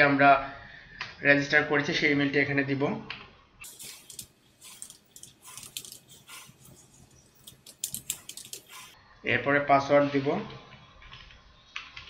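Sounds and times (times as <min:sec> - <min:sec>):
keyboard keys clicking: 0:03.7 - 0:09.0.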